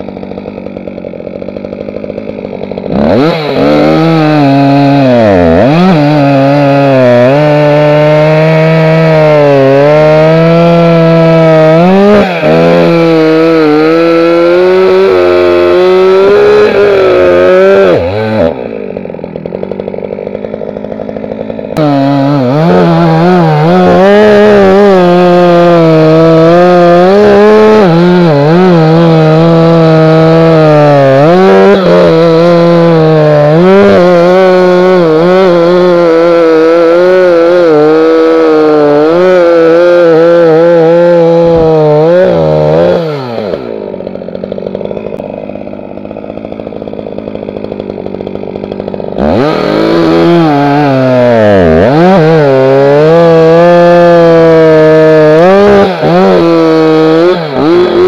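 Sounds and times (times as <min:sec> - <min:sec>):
chainsaw cutting log: 0:00.0 - 0:58.0.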